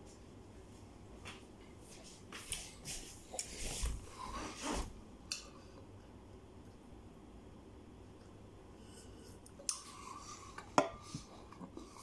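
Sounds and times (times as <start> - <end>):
rustling and scraping: 0.8 - 5.0.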